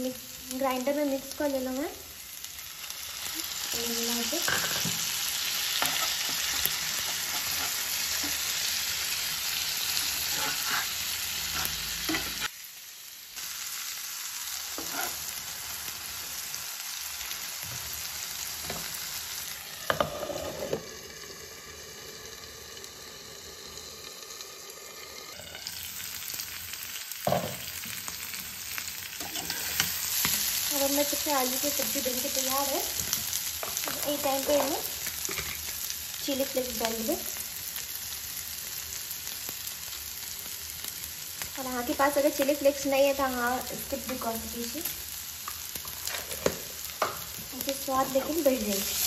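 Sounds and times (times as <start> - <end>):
potatoes sizzling in hot oil: 0.0 - 49.0
spatula scraping a pan: 5.8 - 8.5, 9.9 - 12.5, 14.8 - 15.3, 19.9 - 20.8, 29.2 - 30.5.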